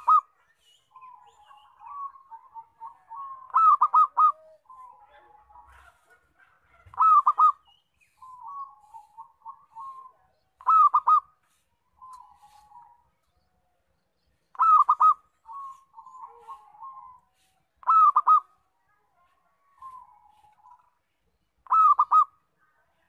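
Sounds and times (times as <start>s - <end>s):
dove cooing: 0.0s - 13.1s, 14.5s - 18.7s, 21.6s - 22.4s.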